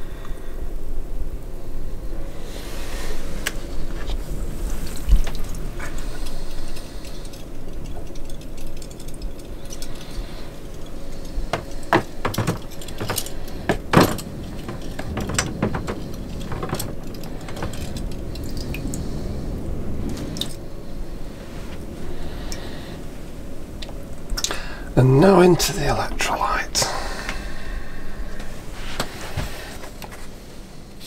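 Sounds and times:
metal fasteners clinking: 0:05.2 - 0:19.0
sharp knocks: 0:11.5 - 0:17.9.

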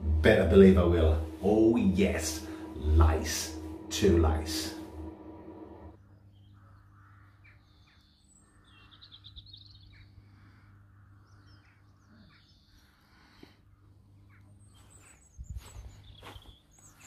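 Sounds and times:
faint bird chirps: 0:06.1 - 0:17.0.

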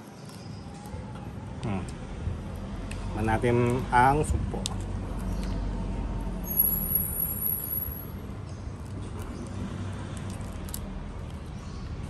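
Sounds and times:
motor vehicle rumbling past: 0:01.7 - 0:12.0
thin high squeal: 0:06.4 - 0:08.1.

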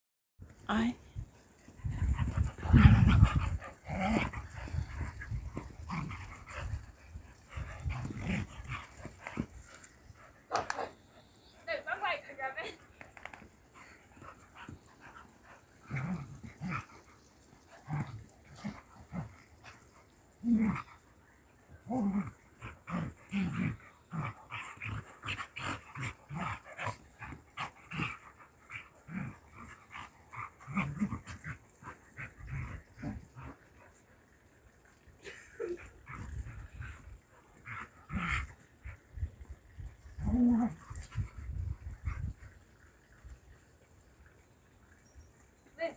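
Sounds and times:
dogs play-fighting vocalizing: 0:01.2 - 0:11.6, 0:12.8 - 0:43.6
dogs snapping and huffing: 0:01.9 - 0:11.0.

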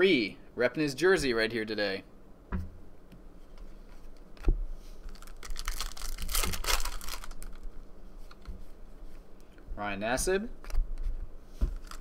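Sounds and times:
crinkly rustling: 0:04.8 - 0:09.2, 0:10.6 - 0:12.0.

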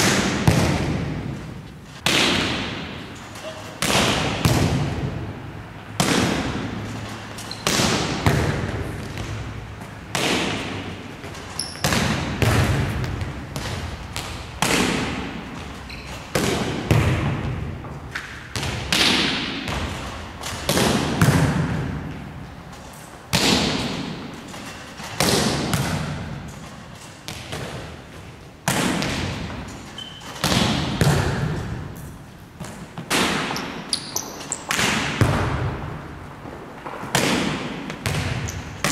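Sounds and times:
volleyball being hit: 0:00.0 - 0:01.4, 0:02.0 - 0:03.1, 0:03.7 - 0:05.3, 0:06.0 - 0:07.0, 0:07.6 - 0:22.2, 0:25.2 - 0:26.4, 0:30.4 - 0:31.8, 0:32.6 - 0:33.8, 0:34.7 - 0:36.1, 0:36.8 - 0:38.9.

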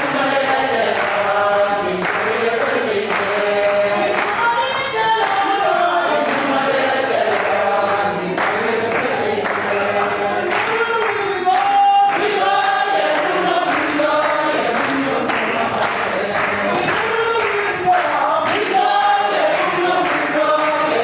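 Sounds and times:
congregation singing: 0:00.0 - 0:21.0
hand claps keeping time: 0:00.0 - 0:21.0.

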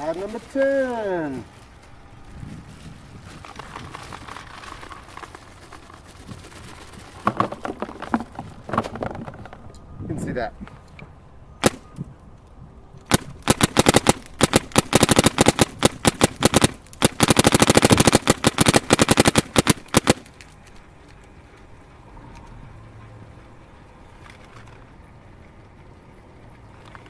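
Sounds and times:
paintball marker firing: 0:11.6 - 0:11.9, 0:13.1 - 0:20.4.

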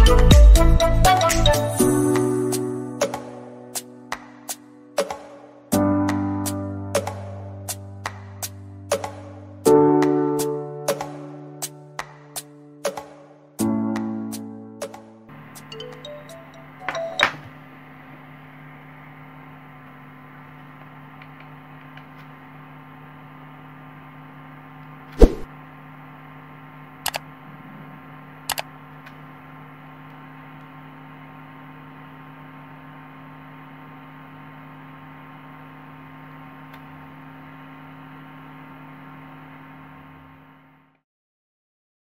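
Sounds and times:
cooling fan hum: 0:15.3 - 0:40.9.

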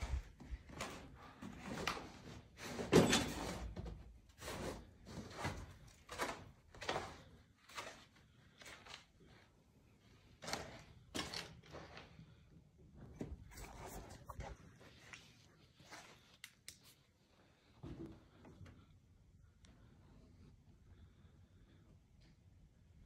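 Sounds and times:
footsteps on littered floor: 0:04.4 - 0:09.5.

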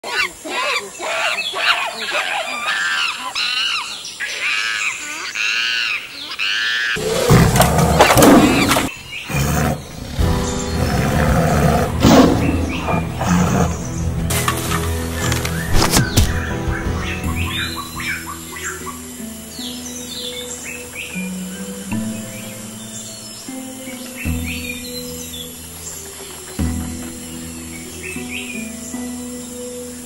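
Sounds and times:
monkeys calling: 0:00.0 - 0:14.0, 0:15.0 - 0:19.2
tiger roaring and growling: 0:07.0 - 0:14.2
music: 0:07.0 - 0:30.0.

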